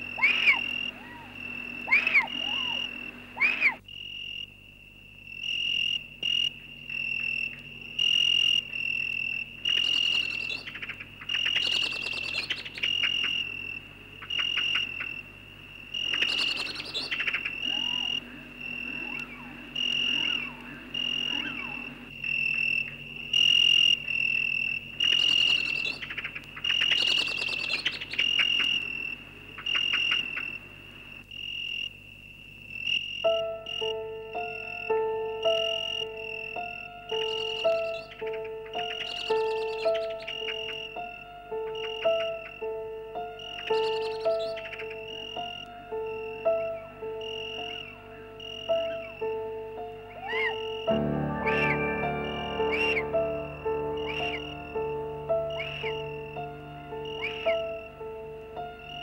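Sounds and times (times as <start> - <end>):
swooping warbling calls: 0.0 - 3.8, 16.0 - 22.1, 50.1 - 58.0
insect chirping: 0.0 - 59.0
rapid insect clicking: 5.4 - 15.2, 15.9 - 30.6, 34.9 - 42.7.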